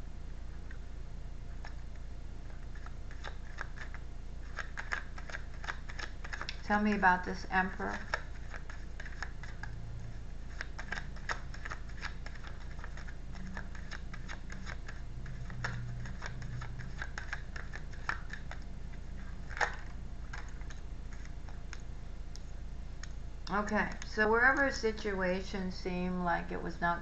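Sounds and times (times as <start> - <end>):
cards clicking and tapping on table: 10.6 - 18.6.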